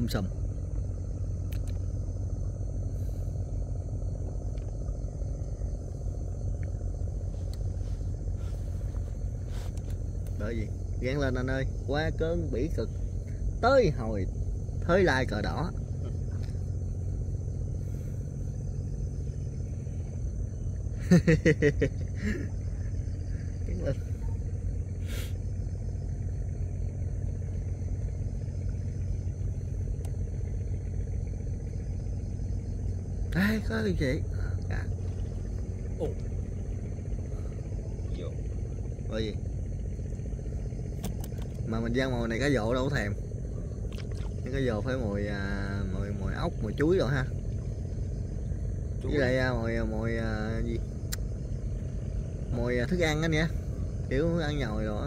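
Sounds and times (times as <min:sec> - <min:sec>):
small boat engine running: 0:00.0 - 0:55.0
sharp click: 0:01.5 - 0:01.8.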